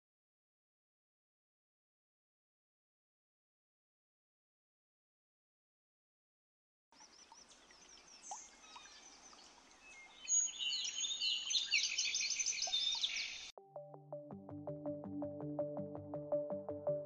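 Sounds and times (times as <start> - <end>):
birds chirping and singing: 7.0 - 13.5
synthesizer music: 13.6 - 17.0.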